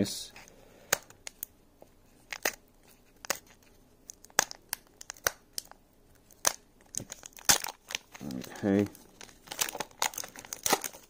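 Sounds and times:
foil wrapper crinkling and tearing: 2.2s - 11.0s.

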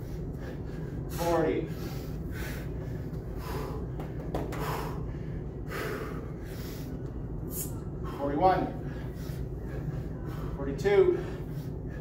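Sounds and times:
man breathing hard: 0.0s - 12.0s.

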